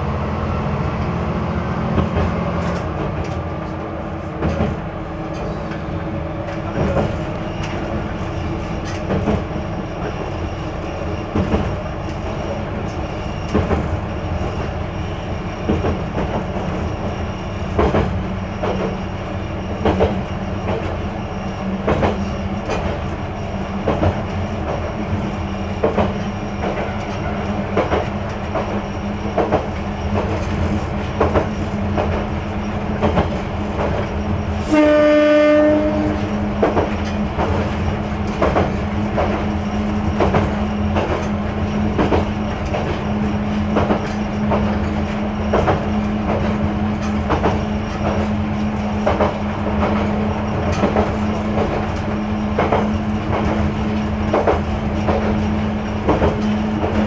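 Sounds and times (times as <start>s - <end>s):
diesel engine drone: 0.0s - 34.7s
train wheel clacks: 0.9s - 57.0s
train horn: 34.6s - 36.5s.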